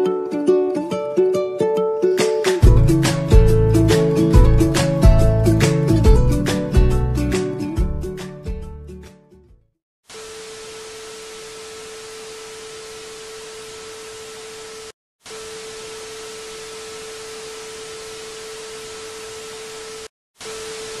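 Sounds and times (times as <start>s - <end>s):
static hiss: 10.1s - 21.0s.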